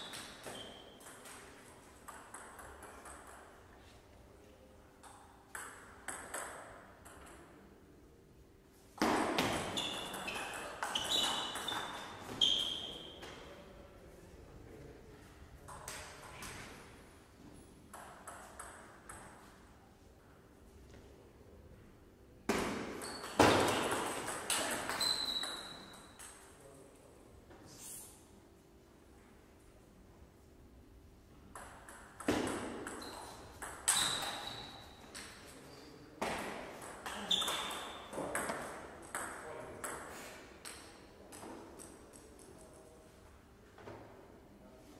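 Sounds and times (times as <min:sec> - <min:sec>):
table tennis ball bouncing: 0:00.0 - 0:03.8, 0:05.0 - 0:07.6, 0:09.0 - 0:13.4, 0:17.9 - 0:19.6, 0:22.5 - 0:26.5, 0:31.5 - 0:35.5, 0:36.2 - 0:42.5.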